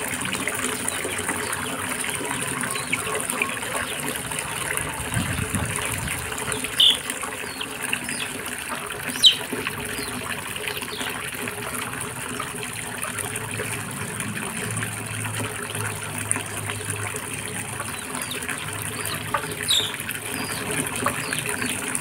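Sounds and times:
hose water splashing into tub: 0.0s - 22.0s
high chirps: 6.8s - 7.0s, 9.1s - 9.4s, 19.6s - 20.0s.

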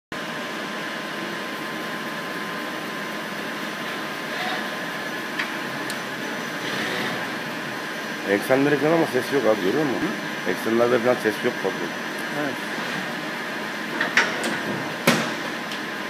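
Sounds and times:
lathe running: 1.2s - 14.0s.

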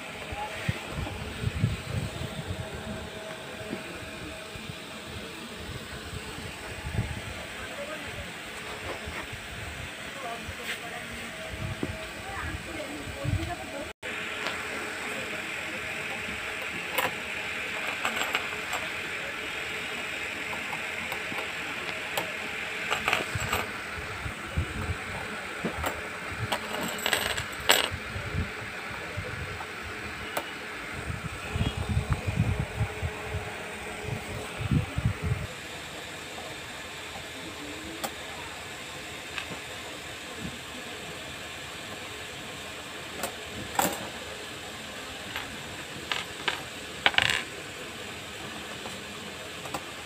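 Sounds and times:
metal parts clinking: 17.8s - 18.9s, 22.9s - 23.7s, 26.5s - 28.0s.

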